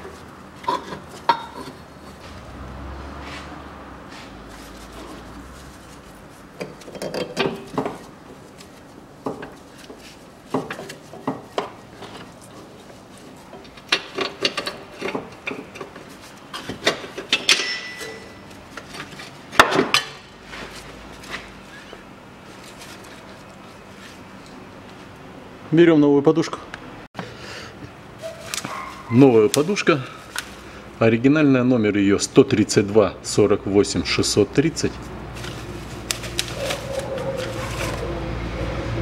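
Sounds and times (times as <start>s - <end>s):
metallic clinks and knocks: 17.2s - 18.5s.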